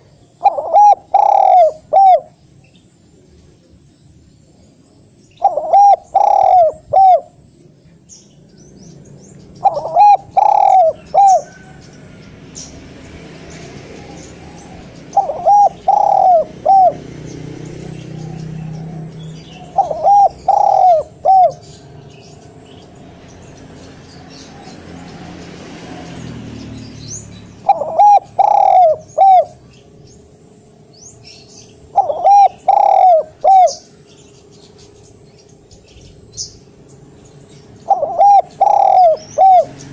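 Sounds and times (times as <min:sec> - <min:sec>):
dove cooing: 0:00.0 - 0:02.4, 0:05.4 - 0:07.4, 0:09.6 - 0:11.8, 0:13.8 - 0:22.0, 0:27.5 - 0:29.8, 0:31.3 - 0:34.1, 0:37.8 - 0:39.9.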